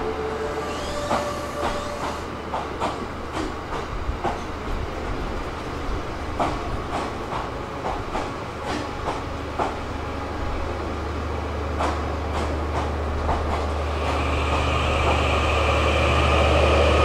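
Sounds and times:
train wheels clicking over rail joints: 0:00.7 - 0:04.8, 0:06.3 - 0:09.9, 0:11.7 - 0:15.6.

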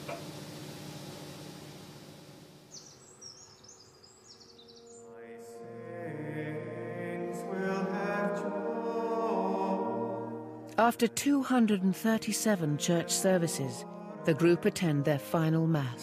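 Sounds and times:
bird chirping: 0:02.7 - 0:05.2
sung chant: 0:04.9 - 0:16.0.

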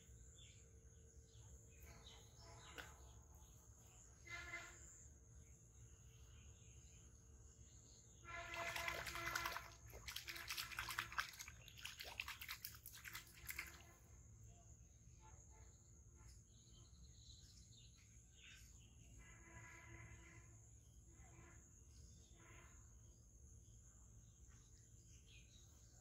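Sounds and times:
water splashing in pond: 0:08.3 - 0:14.1.

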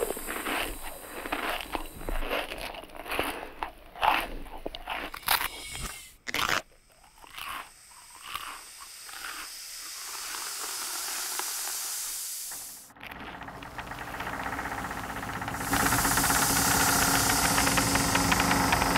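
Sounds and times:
smooth hiss: 0:00.0 - 0:02.2, 0:05.4 - 0:06.2, 0:07.7 - 0:18.9
cartoon crunching like chewing: 0:00.0 - 0:11.8.

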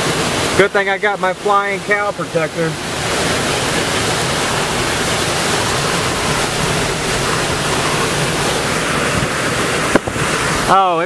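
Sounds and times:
heavy driving rain: 0:00.0 - 0:11.0
wind buffeting microphone: 0:02.8 - 0:10.8
storm-force wind: 0:02.8 - 0:11.0.

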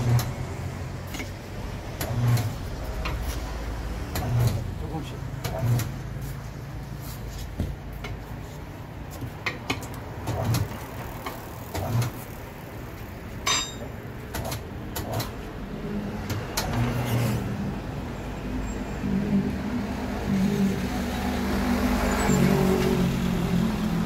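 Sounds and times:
ringing metallic clink: 0:13.4 - 0:13.9
tools knocking on wheel rim: 0:13.4 - 0:14.0.

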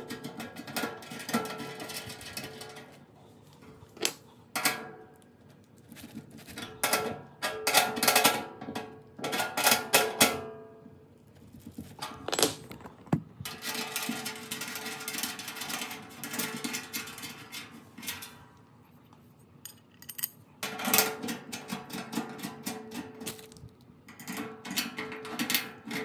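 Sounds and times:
bolts and nuts rattling: 0:12.0 - 0:13.9.

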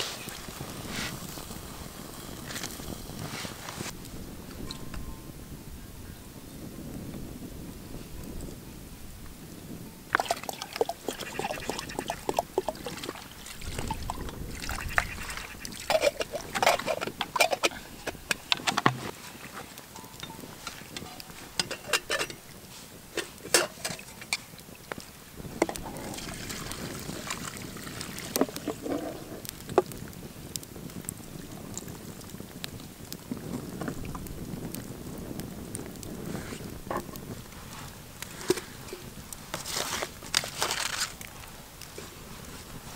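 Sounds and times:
water poured into pot: 0:10.1 - 0:18.1, 0:25.6 - 0:28.8
spoon clinking metal cookware: 0:20.0 - 0:22.4.

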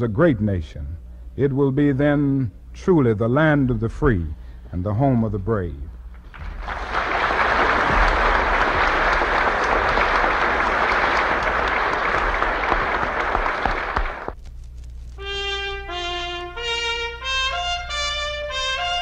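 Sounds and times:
audience applauding: 0:06.3 - 0:14.4.

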